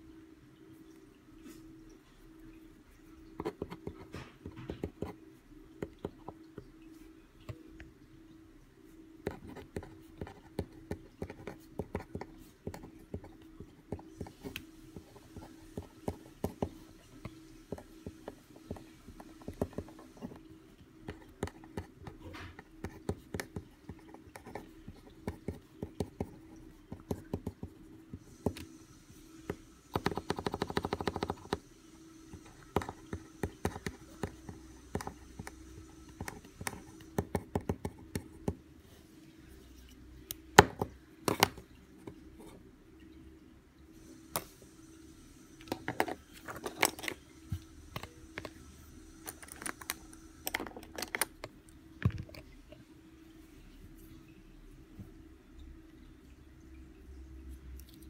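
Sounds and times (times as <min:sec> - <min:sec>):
pencil clicks and knocks: 0:29.9 - 0:31.6, 0:40.6 - 0:41.6.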